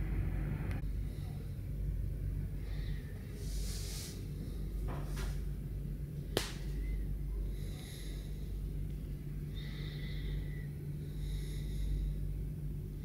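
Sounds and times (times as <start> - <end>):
steady low room hum: 0.0 - 13.0
faint high whistling tones: 6.7 - 7.2, 9.5 - 10.8.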